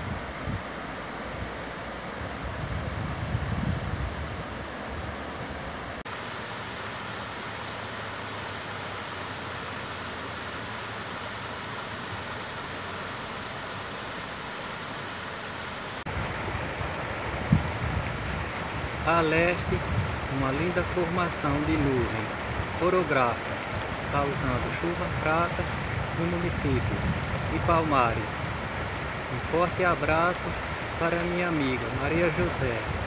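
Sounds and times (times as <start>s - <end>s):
wind buffeting the microphone: 0.0s - 5.8s, 16.1s - 22.8s, 23.4s - 29.8s.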